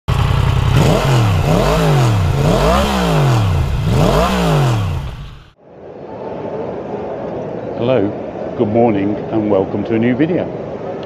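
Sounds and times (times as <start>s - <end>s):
motorcycle engine revving: 0.1s - 5.6s.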